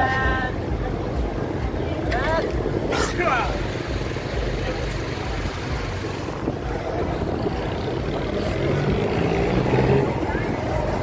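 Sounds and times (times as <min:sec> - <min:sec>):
car engines: 0:00.0 - 0:11.0
road noise: 0:00.0 - 0:11.0
motorbike engine: 0:02.9 - 0:11.0.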